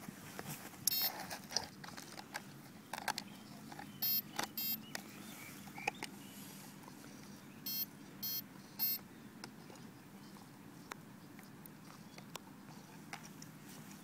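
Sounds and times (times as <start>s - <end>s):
plastic clicks and handling: 0.9s - 5.0s
short electronic beeps: 4.0s - 4.8s, 7.6s - 9.0s.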